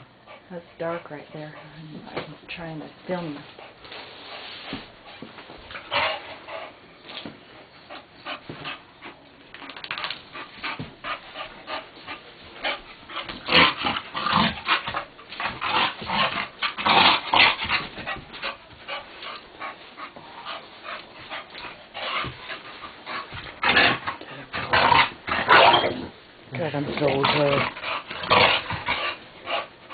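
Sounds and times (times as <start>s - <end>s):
dog breathing hard: 17.5s - 24.7s.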